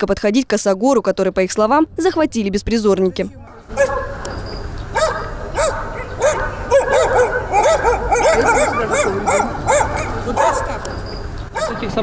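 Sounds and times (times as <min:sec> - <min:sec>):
dogs barking: 0:03.4 - 0:12.0.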